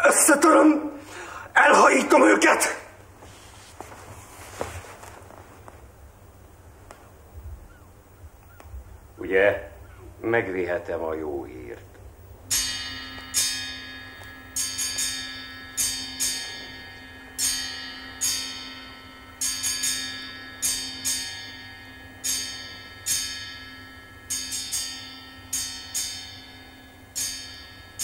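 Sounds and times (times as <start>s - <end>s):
bell-like struck notes: 12.5s - 28.0s.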